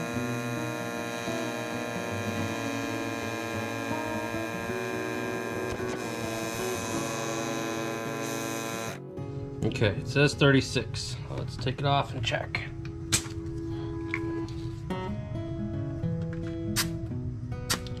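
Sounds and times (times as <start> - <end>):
portable air compressor running: 0.0 - 9.0.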